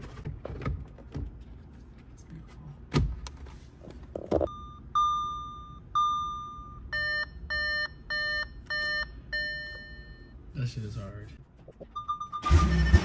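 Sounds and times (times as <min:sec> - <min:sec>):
short beeps: 0:04.5 - 0:10.4, 0:11.9 - 0:13.0.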